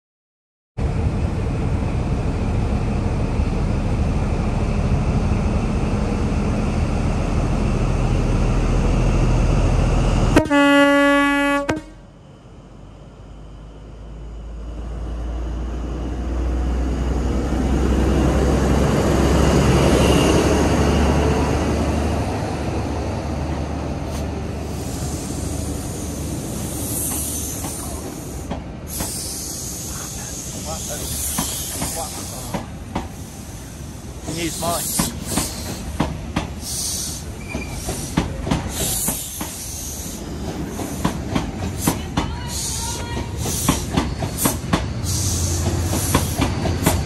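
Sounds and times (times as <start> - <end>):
diesel train engine rumble: 0.8 - 47.0
train horn: 10.3 - 12.1.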